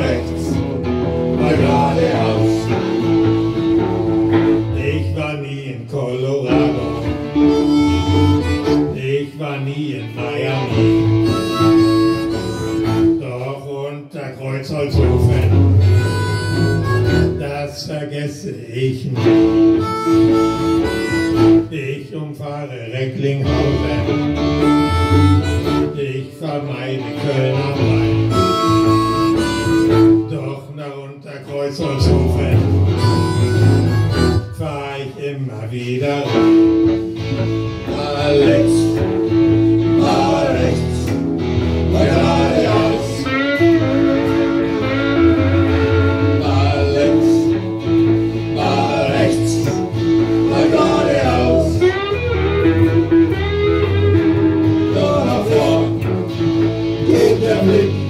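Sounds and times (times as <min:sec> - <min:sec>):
strummed guitar: 0:00.0 - 0:13.6, 0:14.7 - 0:58.0
harmonica playing: 0:06.8 - 0:09.0, 0:10.9 - 0:13.2, 0:15.8 - 0:17.5, 0:19.6 - 0:21.7, 0:24.4 - 0:26.1, 0:28.1 - 0:30.4, 0:32.8 - 0:34.7, 0:41.6 - 0:47.0.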